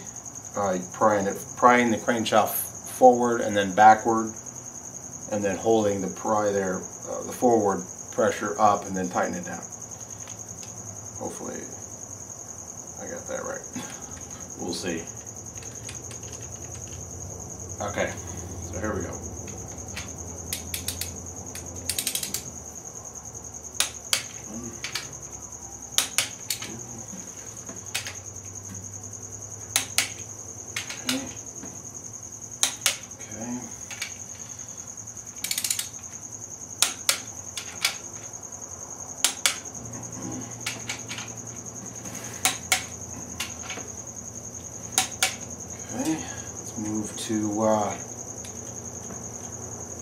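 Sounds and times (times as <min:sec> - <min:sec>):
steady high-pitched whine: 0:12.9 - 0:50.0
torque wrench clicks: 0:19.9 - 0:22.5, 0:35.4 - 0:36.0.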